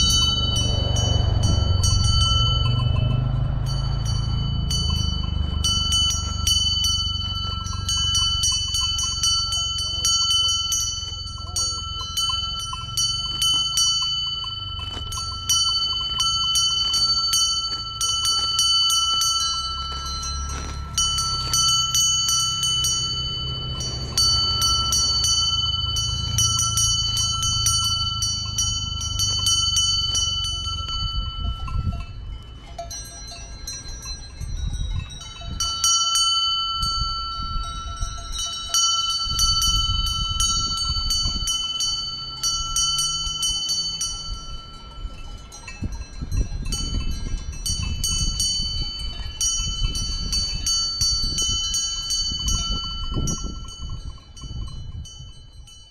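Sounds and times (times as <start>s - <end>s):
low rumble: 0.0s - 35.7s
cowbell clanking: 0.0s - 55.9s.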